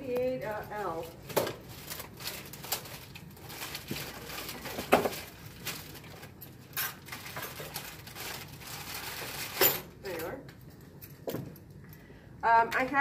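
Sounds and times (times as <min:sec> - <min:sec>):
packaging rustling: 0:00.6 - 0:09.9.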